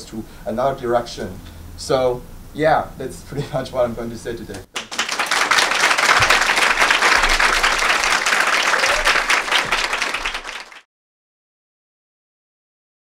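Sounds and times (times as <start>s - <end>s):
audience applauding: 4.7s - 10.9s.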